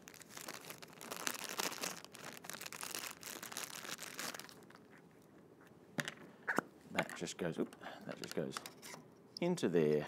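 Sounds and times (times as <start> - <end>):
plastic bag crinkling: 0.0 - 5.0.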